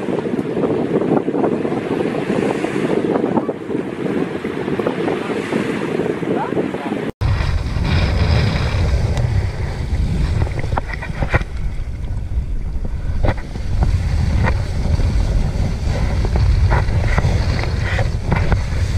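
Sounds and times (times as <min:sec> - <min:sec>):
wind buffeting microphone: 0:00.0 - 0:18.9
rush of water spray: 0:07.2 - 0:18.9.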